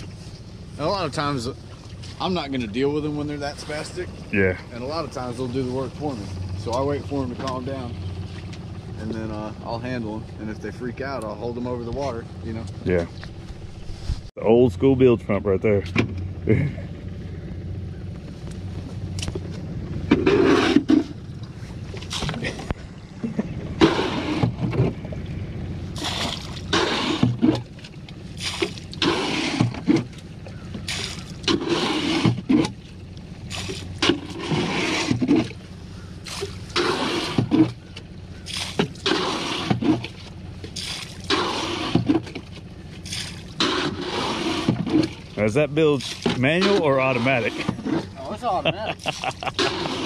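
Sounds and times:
scoop scraping and water sloshing: 1.2 - 2.8, 18.4 - 48.3, 48.9 - 50.0.

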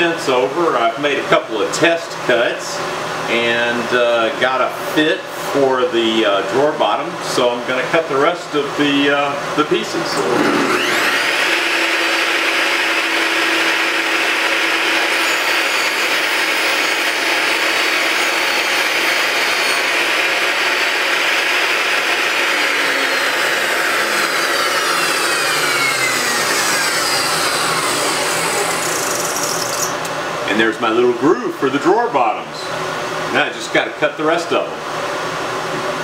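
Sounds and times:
table saw cutting plywood: 10.0 - 30.1.

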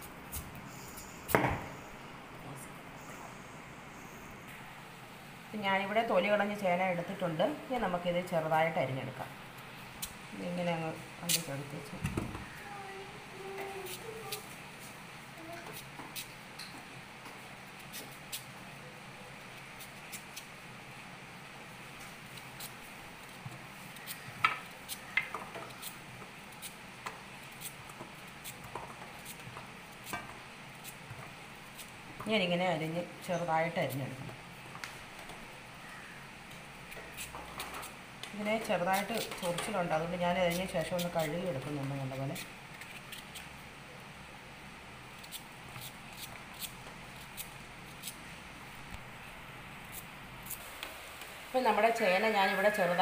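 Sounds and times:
knife cutting yam: 37.1 - 43.5.

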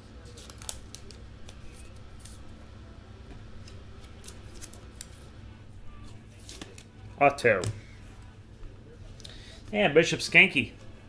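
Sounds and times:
low steady hum: 0.0 - 11.0
trading cards clicking and rustling: 0.2 - 2.6, 3.3 - 5.3, 6.3 - 8.2.

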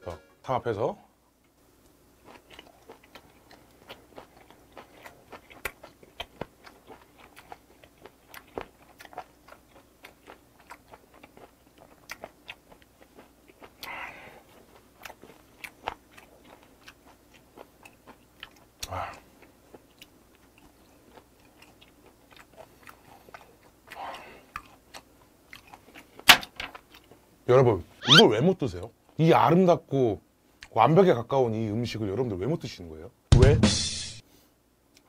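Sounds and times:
wet chewing and crunching: 2.2 - 27.3.

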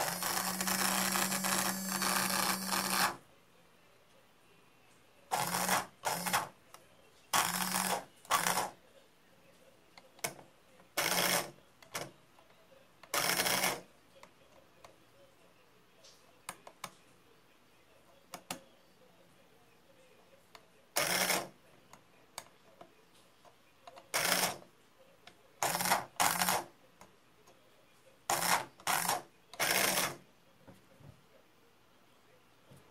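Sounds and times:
small motors whirring: 0.0 - 3.2
screwdriver ticking on circuit board: 7.4 - 8.7.

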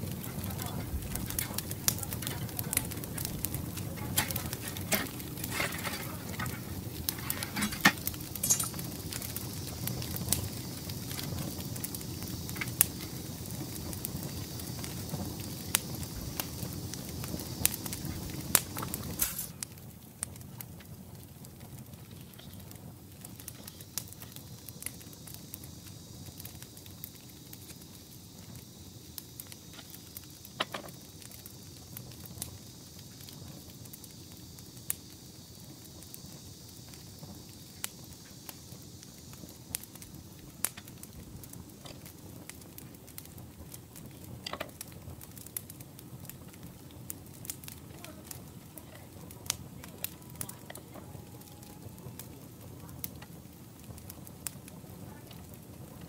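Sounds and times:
faint high hiss: 0.0 - 56.0
grill basket clicking and clinking: 3.9 - 8.8.

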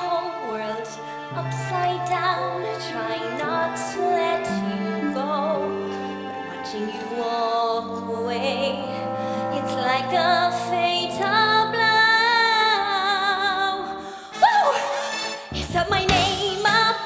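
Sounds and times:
backing track: 14.4 - 17.0.

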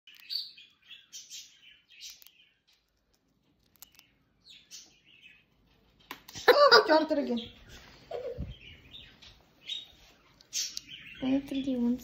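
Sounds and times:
hamster crunching a cracker: 2.0 - 4.1.

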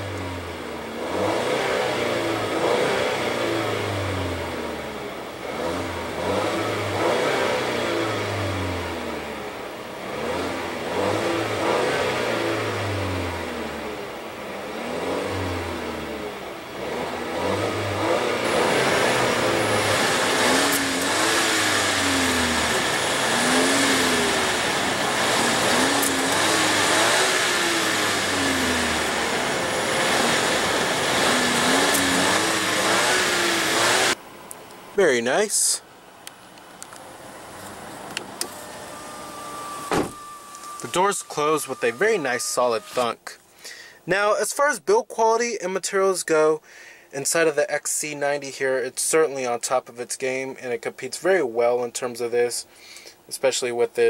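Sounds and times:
car engine revving: 0.0 - 34.4, 35.1 - 43.4.

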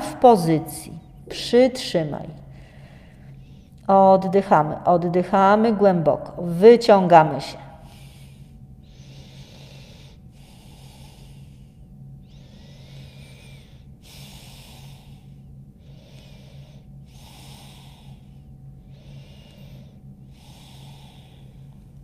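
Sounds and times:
faint low hum: 0.0 - 22.0
woman breathing deeply: 2.4 - 3.8, 7.6 - 22.0.

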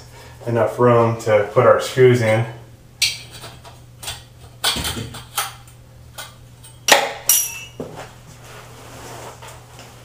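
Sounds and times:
steady low hum: 0.0 - 10.0
metallic ring: 6.6 - 7.8.

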